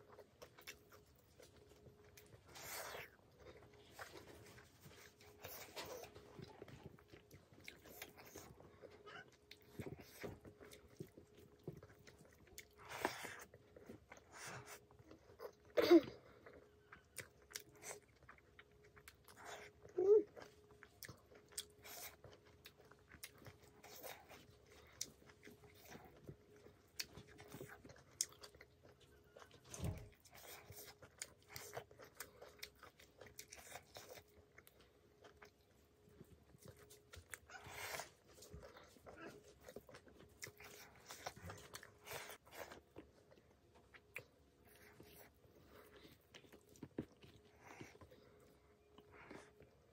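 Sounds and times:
close chewing: 0.0 - 49.9
faint steady hum: 0.0 - 49.9.

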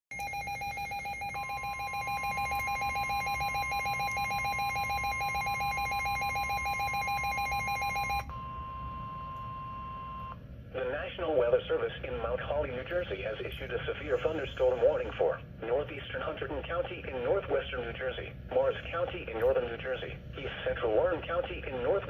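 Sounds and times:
steady single-pitch alarm tone: 0.1 - 10.4.

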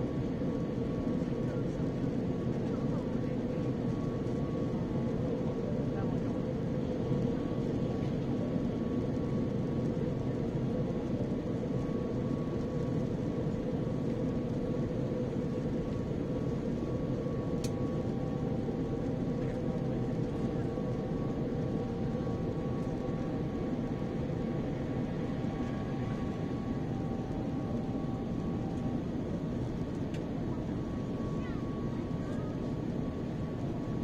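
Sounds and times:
airliner cabin drone: 0.0 - 34.0
faint click: 17.6 - 17.8.

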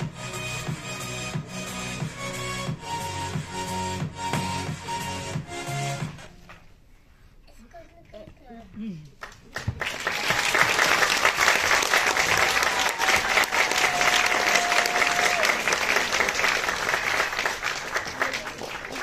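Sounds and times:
audience applauding: 9.2 - 19.0.

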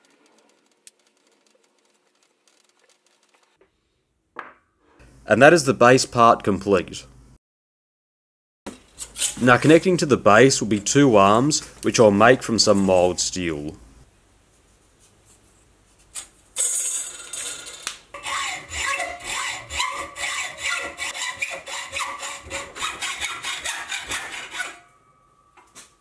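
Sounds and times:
hacksaw cutting steel bar: 18.2 - 24.9.

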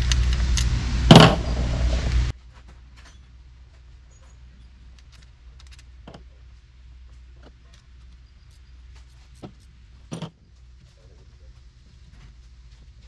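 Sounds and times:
low steady hum: 0.0 - 13.0
loud knock: 1.1 - 2.0.

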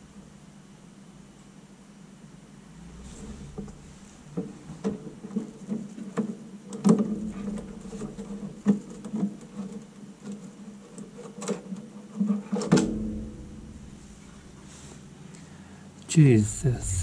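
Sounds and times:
sharp knocks: 12.7 - 14.7.

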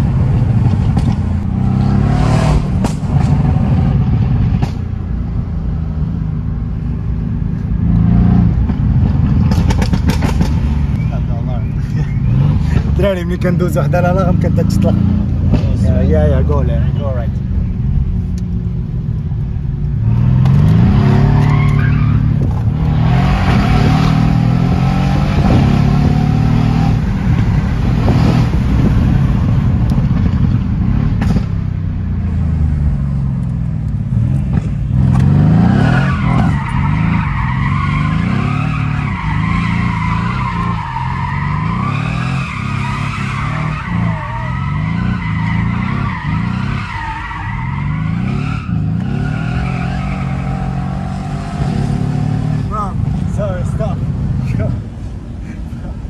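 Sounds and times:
car engine revving in cabin: 19.8 - 31.5.

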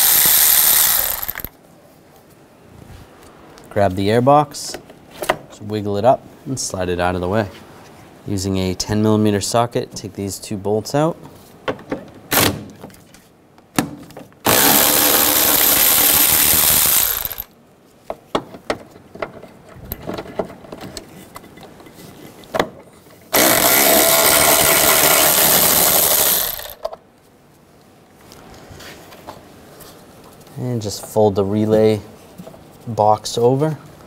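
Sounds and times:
electric ratchet running: 0.0 - 1.5, 14.5 - 17.5, 23.4 - 26.8.

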